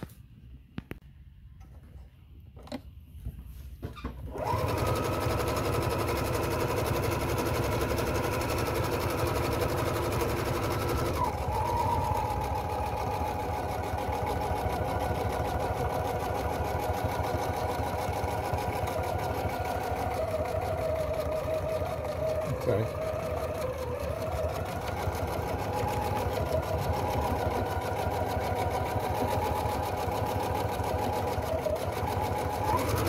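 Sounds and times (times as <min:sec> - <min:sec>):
sewing machine stitching: 0:04.2 - 0:33.0.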